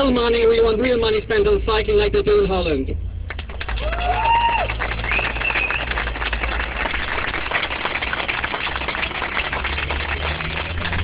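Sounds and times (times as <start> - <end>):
crowd clapping and cheering: 3.3 - 11.0
people whooping: 3.7 - 6.0.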